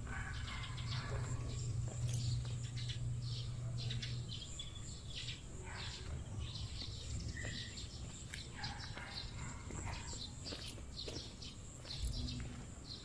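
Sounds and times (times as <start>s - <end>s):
low hum: 0.0s - 8.0s
birds chirping and calling: 0.0s - 13.0s.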